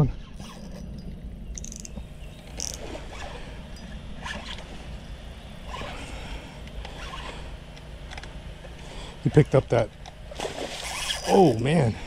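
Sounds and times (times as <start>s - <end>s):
steady low rumble: 0.0s - 10.6s
fishing reel drag buzzing: 0.3s - 7.7s, 10.5s - 11.6s.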